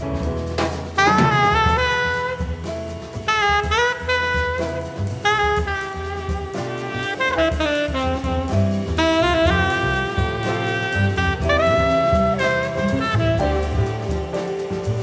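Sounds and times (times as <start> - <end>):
drums with cymbals: 0.0 - 15.0
plucked double bass: 0.0 - 15.0
tenor saxophone phrases: 5.2 - 14.0.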